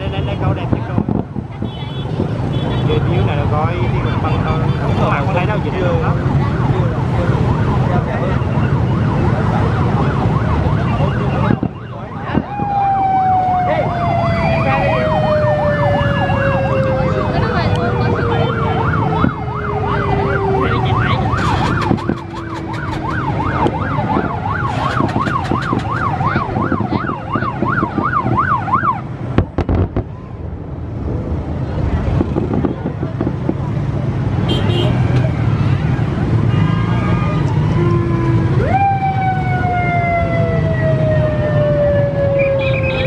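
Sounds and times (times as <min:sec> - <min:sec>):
wavering siren-like tone: 0:05.5 - 0:29.0, 0:37.1 - 0:43.0
fireworks booming: 0:29.3 - 0:30.2.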